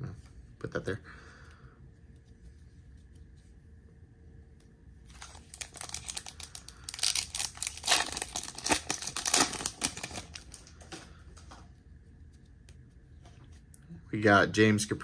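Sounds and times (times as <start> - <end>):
foil wrapper crinkling and tearing: 5.1 - 10.8.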